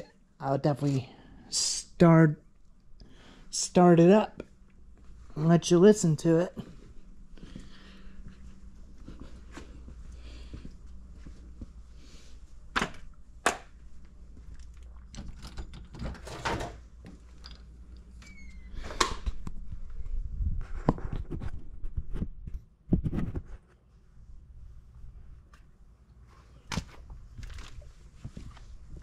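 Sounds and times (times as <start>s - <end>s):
faint steady hum: 0.0s - 22.6s
door opening: 18.2s - 19.4s.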